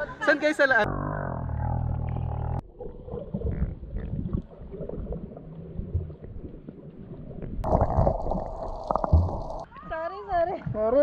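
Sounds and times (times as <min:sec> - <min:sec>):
muffled underwater rumbles: 0:00.9 - 0:09.7
water gurgling and bubbles: 0:01.9 - 0:09.7.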